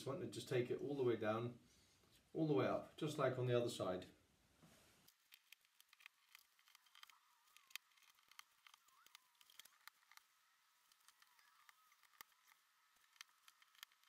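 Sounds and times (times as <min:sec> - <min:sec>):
masking tape pulled from roll: 0:05.0 - 0:14.0.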